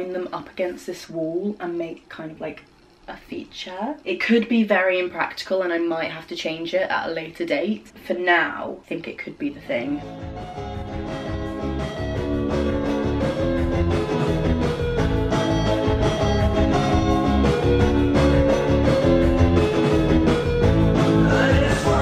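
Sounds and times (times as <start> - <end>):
music with steady beat and bass: 10.0 - 22.0.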